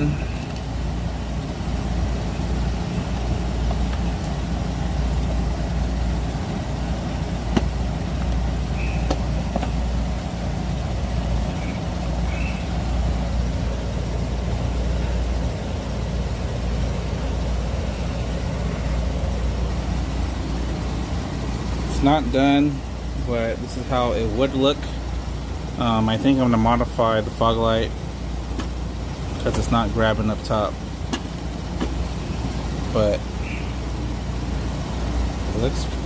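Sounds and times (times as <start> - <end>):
vehicle engine idling: 0.0 - 36.0
faint high chirps: 8.7 - 9.2, 11.5 - 12.8.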